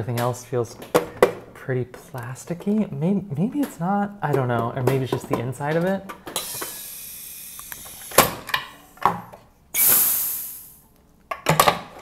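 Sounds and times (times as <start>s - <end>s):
faint hiss: 6.2s - 9.1s, 9.7s - 11.0s
loud gas venting hiss: 6.3s - 9.0s, 9.7s - 10.9s.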